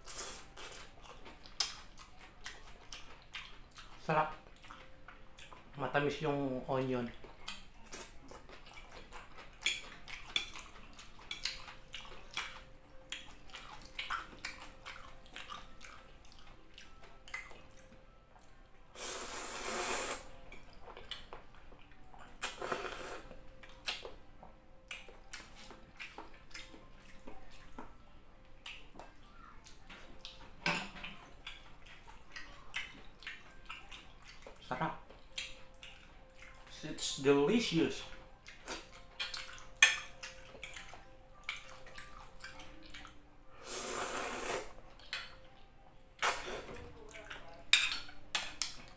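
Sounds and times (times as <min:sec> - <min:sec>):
slurping noodles: 0:19.0 - 0:20.3, 0:22.4 - 0:23.3, 0:43.6 - 0:44.8, 0:46.2 - 0:46.7
wet mouth sounds: 0:19.0 - 0:20.3, 0:22.4 - 0:24.1, 0:38.5 - 0:44.8, 0:46.2 - 0:47.4.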